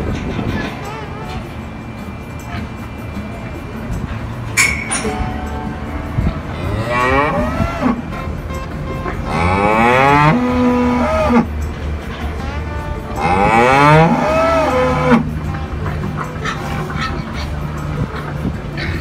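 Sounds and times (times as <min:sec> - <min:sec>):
cow mooing: 0:06.4 - 0:08.2, 0:09.2 - 0:11.5, 0:12.4 - 0:15.9.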